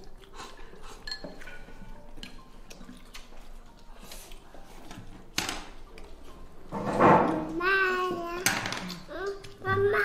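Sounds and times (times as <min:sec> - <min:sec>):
chopsticks clinking on ceramic bowl: 0:01.0 - 0:02.5.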